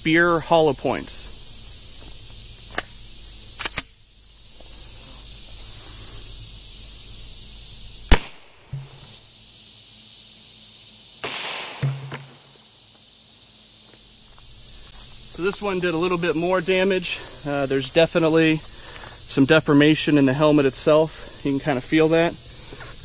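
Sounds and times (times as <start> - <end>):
high insect buzz: 0.0 - 23.0
suppressed gunshot: 8.1 - 9.0, 11.2 - 12.5.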